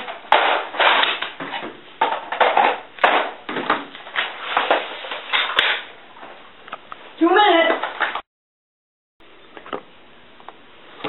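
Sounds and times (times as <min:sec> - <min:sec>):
plastic toy blasters clattering: 0:00.0 - 0:01.4, 0:02.0 - 0:03.6.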